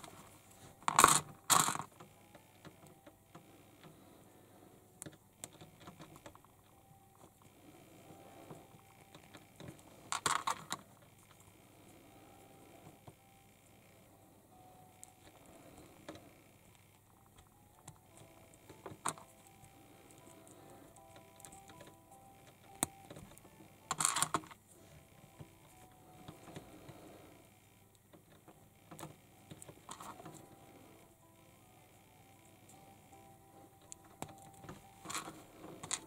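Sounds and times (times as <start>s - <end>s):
plastic toy parts clicking: 0.8s - 3.1s, 5.0s - 6.8s, 9.0s - 11.5s, 22.7s - 24.6s, 28.0s - 30.5s, 33.8s - 36.0s.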